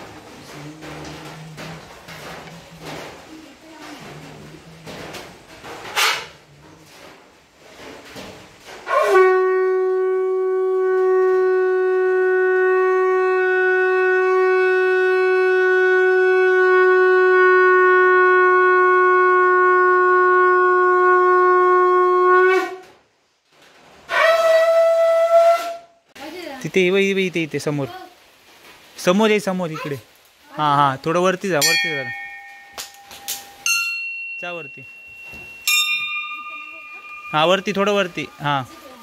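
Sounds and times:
conch shell blast: 0:08.1 - 0:22.9, 0:24.1 - 0:26.0, 0:31.6 - 0:39.0.

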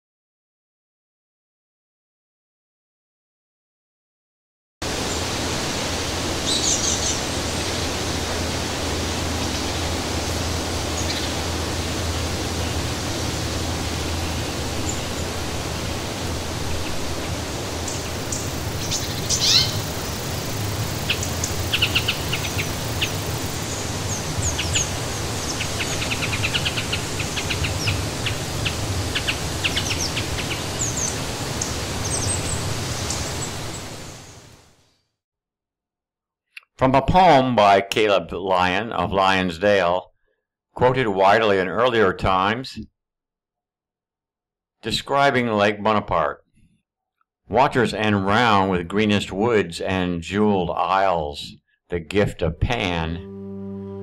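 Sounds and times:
rushing background noise: 0:07.2 - 0:32.0
bird chirps and calls: 0:17.9 - 0:20.1, 0:21.0 - 0:28.0.

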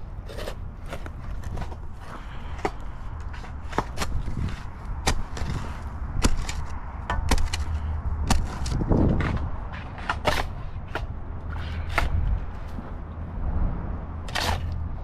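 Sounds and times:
shovel chopping into dirt: 0:03.6 - 0:12.2, 0:14.3 - 0:14.8.

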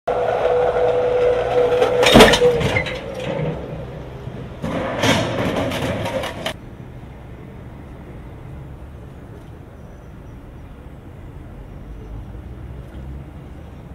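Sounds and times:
car crash crunching metal: 0:00.1 - 0:06.6
crash barrier rolling tone: 0:00.1 - 0:06.6.

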